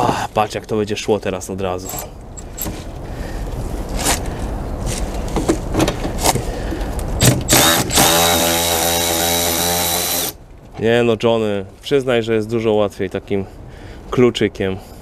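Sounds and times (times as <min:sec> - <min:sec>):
electric ratchet motor whine: 0:07.5 - 0:10.4.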